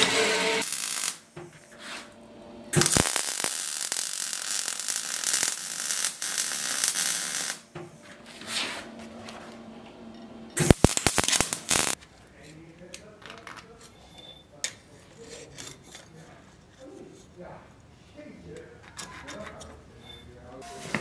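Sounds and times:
band saw cutting steel: 0.0s - 1.3s
welder crackling: 0.0s - 2.1s, 2.7s - 7.7s, 10.6s - 12.0s.

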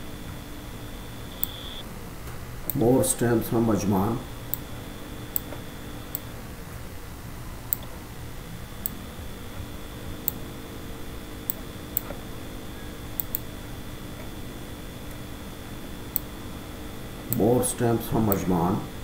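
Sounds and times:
low steady hum: 0.0s - 19.0s
computer mouse clicking: 1.3s - 1.8s, 7.7s - 7.9s, 10.2s - 10.4s, 11.4s - 12.2s, 13.1s - 13.5s, 16.1s - 16.3s.

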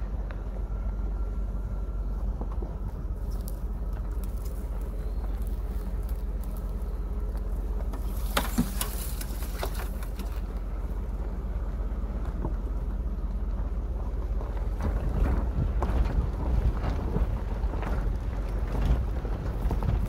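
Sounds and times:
vehicle rumble on dirt track: 0.0s - 20.0s
knocks and rattles from bumps: 7.8s - 10.6s.

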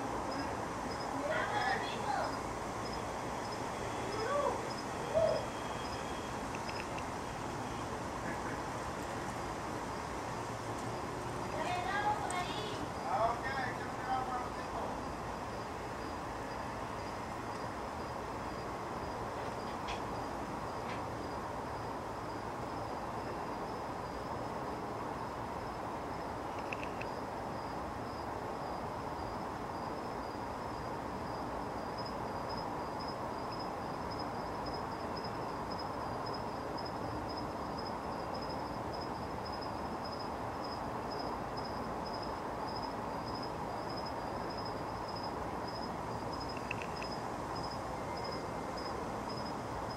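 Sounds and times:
background hiss: 0.0s - 49.9s
pulsing insect trill: 0.0s - 49.9s
faint chirps: 2.0s - 8.7s.

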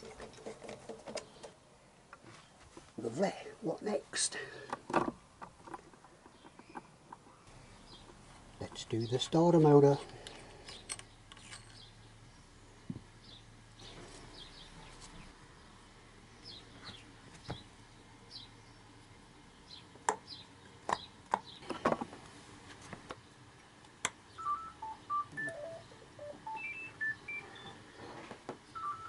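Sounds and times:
electronic beeping tune: 24.4s - 27.8s, 28.8s - 29.0s.

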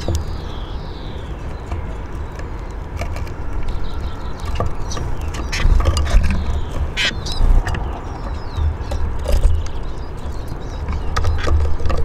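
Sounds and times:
sharp high bird calls: 3.8s - 9.6s.

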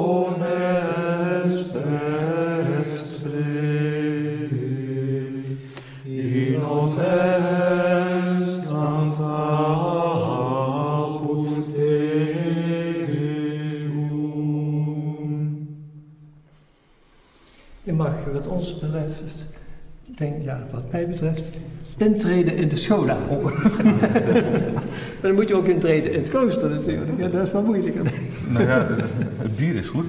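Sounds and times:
men singing chant in unison: 0.0s - 15.7s.

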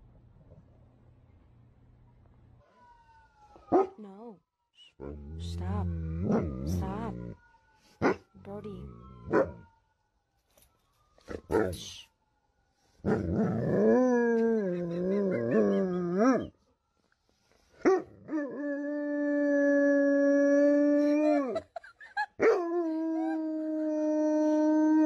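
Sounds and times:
dog howling: 13.1s - 16.5s.

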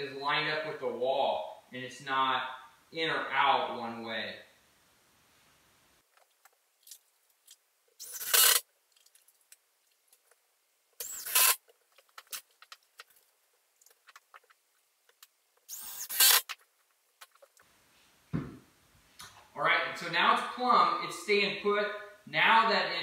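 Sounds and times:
cordless drill driving screws: 8.0s - 8.6s, 11.0s - 11.6s, 15.7s - 16.5s.

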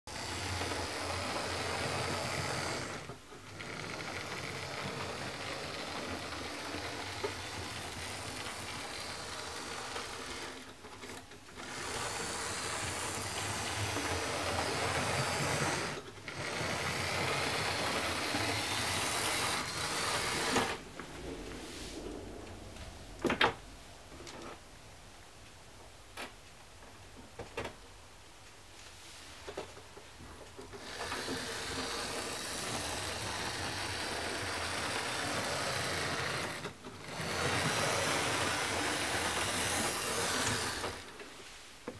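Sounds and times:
model locomotive motor whirring: 0.1s - 21.1s, 30.7s - 41.2s
wheels rattling on rails: 30.3s - 41.2s.

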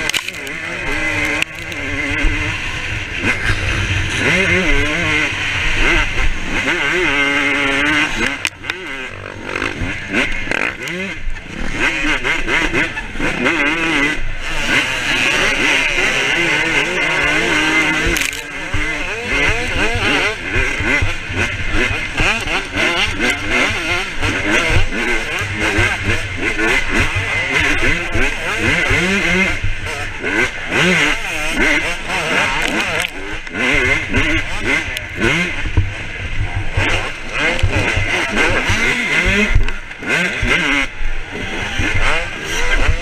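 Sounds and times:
dirt bike engine revving: 0.0s - 43.0s.

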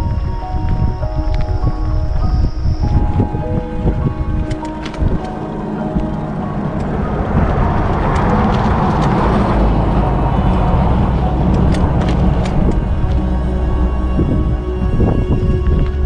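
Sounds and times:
steady low rumble: 0.0s - 16.0s
vehicle passing: 3.6s - 14.8s.

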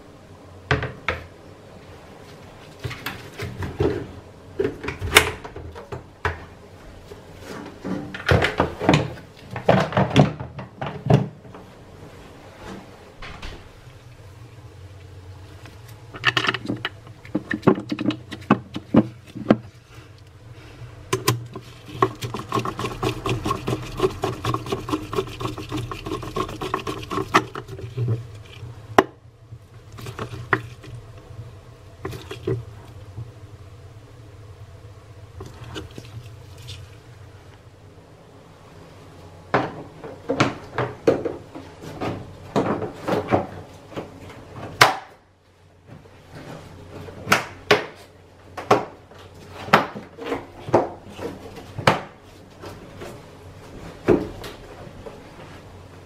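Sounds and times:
plastic knocking and clattering: 7.8s - 11.5s, 16.2s - 19.7s.

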